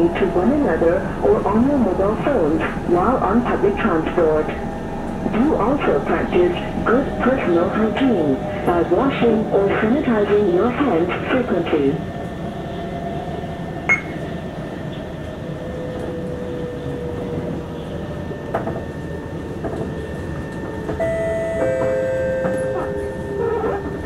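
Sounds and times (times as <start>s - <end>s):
train rumble and hum: 0.0s - 24.0s.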